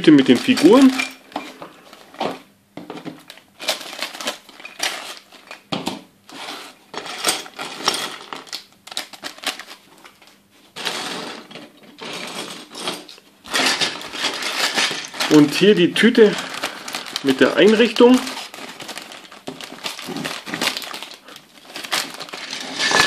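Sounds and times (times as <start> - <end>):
plastic bag crinkling: 0.0 - 1.3, 3.2 - 5.7, 7.5 - 10.2, 13.5 - 23.0
plastic pieces clattering on table: 0.0 - 10.2, 10.8 - 23.0.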